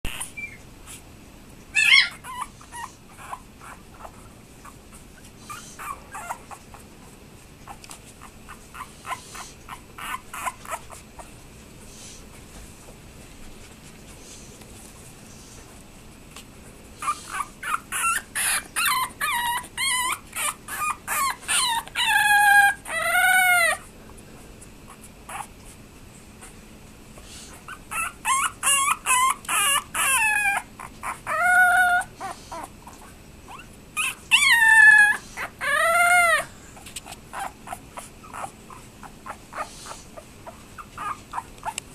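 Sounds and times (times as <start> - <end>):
puppy whimpering and whining: 0.0 - 1.0, 1.7 - 11.4, 17.0 - 23.9, 24.9 - 25.7, 27.4 - 41.9.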